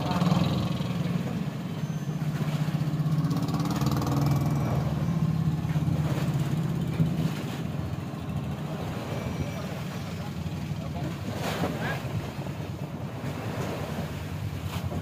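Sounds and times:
large engine idling: 0.0 - 11.4.

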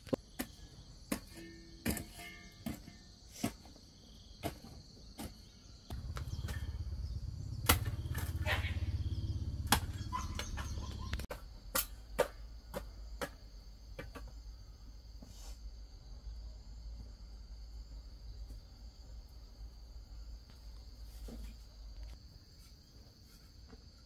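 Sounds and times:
insects chirring: 0.0 - 24.0
low pulsing hum: 5.9 - 11.3.

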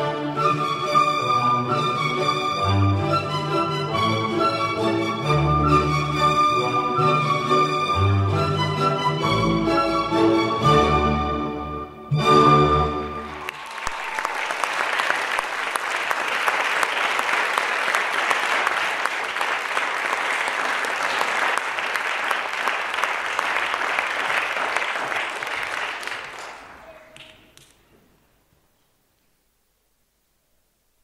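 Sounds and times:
audience applauding: 13.0 - 27.7.

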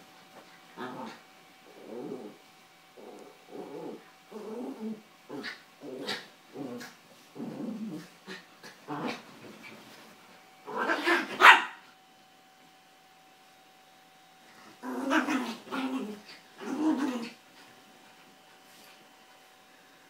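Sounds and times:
dogs growling: 0.8 - 2.4, 3.0 - 9.3, 10.7 - 11.4, 14.5 - 17.4
dogs barking: 11.3 - 11.8.

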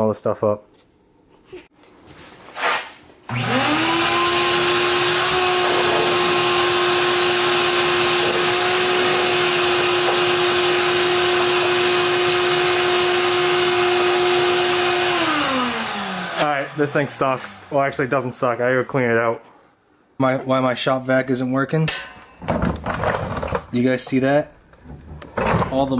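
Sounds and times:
shop vac motor whining: 3.3 - 19.2.

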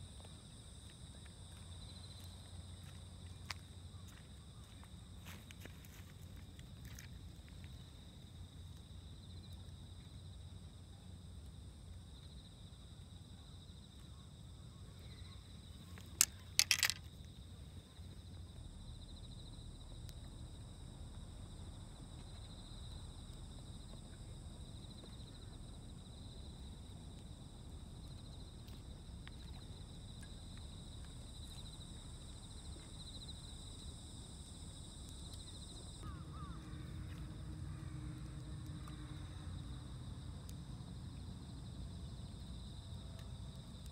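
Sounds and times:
insect chirring: 13.7 - 21.6, 29.5 - 40.3
sharp clicks: 16.0 - 17.1.

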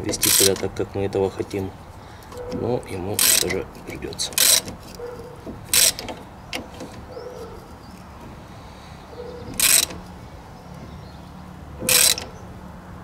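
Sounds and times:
birds calling faintly: 0.0 - 13.0
ratchet wrench clicking: 0.1 - 0.7, 3.2 - 7.1, 9.5 - 10.1, 11.8 - 12.4.

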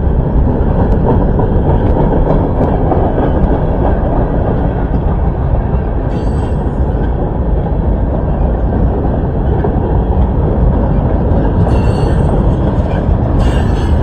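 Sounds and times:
freight train wheels rumbling on rail: 0.0 - 14.0
high wheel squeal: 11.7 - 14.0.

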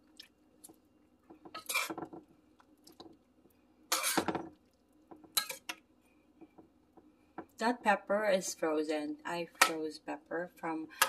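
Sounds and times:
metal spoon scraping a pot: 1.6 - 2.0, 3.9 - 4.3, 5.4 - 5.8.

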